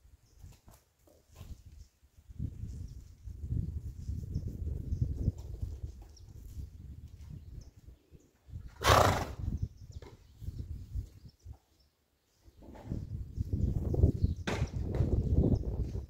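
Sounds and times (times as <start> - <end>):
horse snorting: 8.8 - 9.5.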